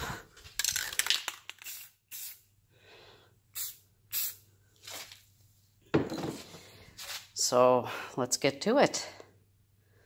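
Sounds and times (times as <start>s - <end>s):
spray paint can hissing: 1.5s - 2.5s, 3.6s - 4.4s.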